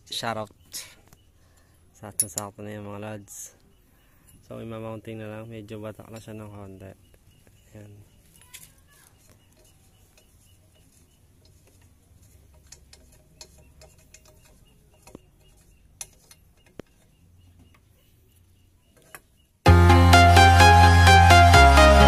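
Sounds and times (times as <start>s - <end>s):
light clicks and taps of metal parts: 0.8s - 2.6s, 8.4s - 17.9s, 18.9s - 19.4s
loud electronic music: 19.7s - 22.0s.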